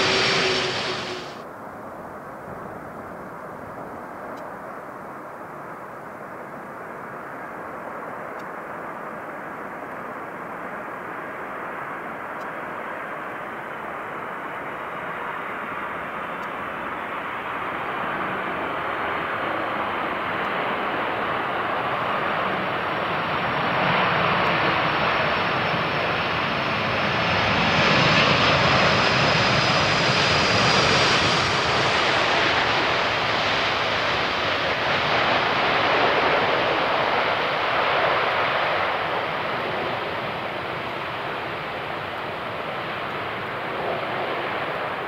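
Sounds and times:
jet engine noise: 0:00.0 - 0:01.5, 0:05.0 - 0:45.0
faint high whine: 0:00.0 - 0:01.9.

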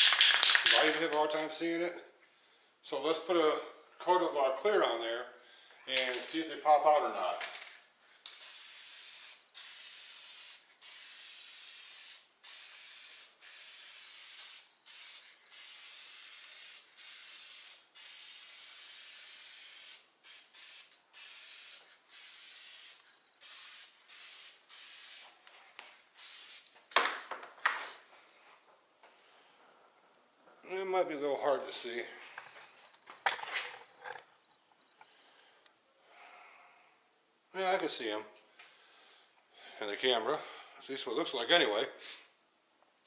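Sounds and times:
aerosol can spraying: 0:08.2 - 0:25.4, 0:26.2 - 0:26.7.

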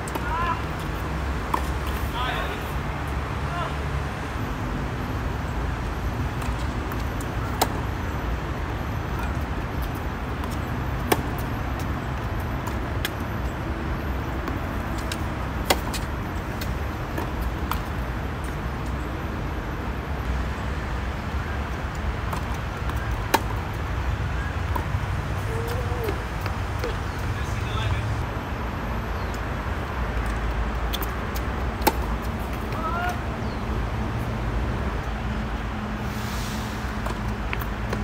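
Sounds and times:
tennis balls struck by racquets: 0:00.0 - 0:03.2, 0:06.3 - 0:07.9, 0:09.1 - 0:13.3, 0:14.3 - 0:18.6, 0:22.0 - 0:23.9, 0:24.6 - 0:27.8, 0:30.2 - 0:33.3.

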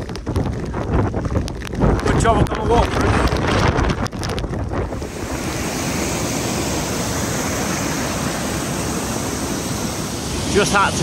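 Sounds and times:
wind buffeting microphone: 0:00.0 - 0:11.0
stream rushing over rocks: 0:04.9 - 0:11.0.

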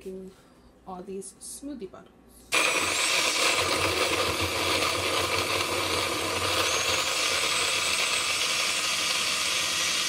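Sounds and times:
blender chopping fruit: 0:02.5 - 0:10.0.

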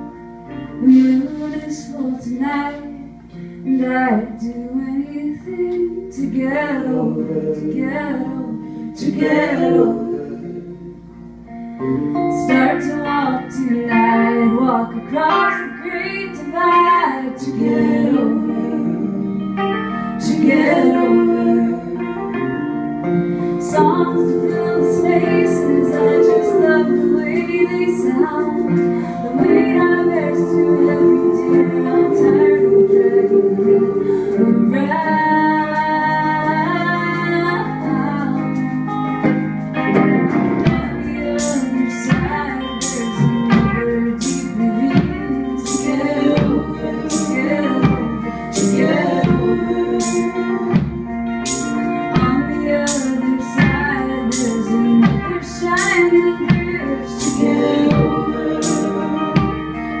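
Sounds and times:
electric guitar: 0:00.0 - 1:00.0
drum kit beat: 0:39.2 - 1:00.0.

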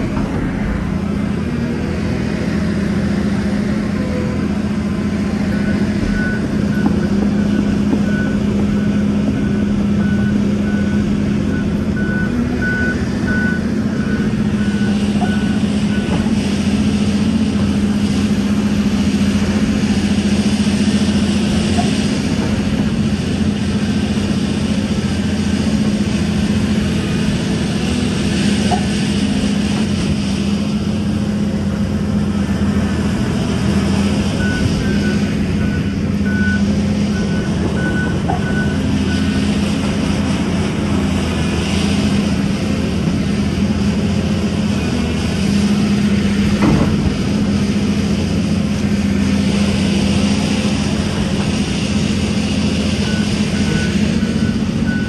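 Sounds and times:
excavator diesel engine running: 0:00.0 - 0:55.0
reversing alarm beeping: 0:05.4 - 0:16.3, 0:34.3 - 0:39.5, 0:53.0 - 0:55.0.

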